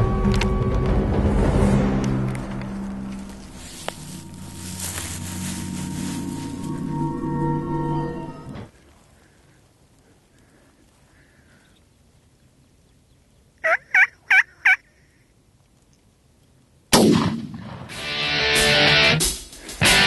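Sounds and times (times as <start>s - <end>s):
turkey gobbling: 13.6s - 15.0s
loud music: 17.9s - 20.0s.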